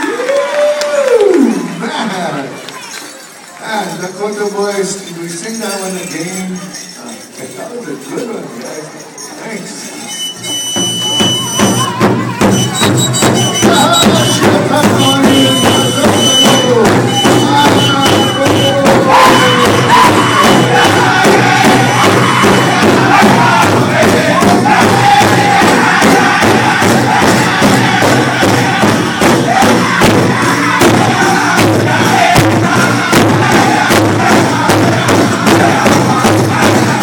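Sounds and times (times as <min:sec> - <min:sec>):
high bone whistle blasts: 0:10.1 - 0:14.4
big drum steady fast beat: 0:10.5 - 0:37.0
group singing in chorus: 0:17.4 - 0:37.0.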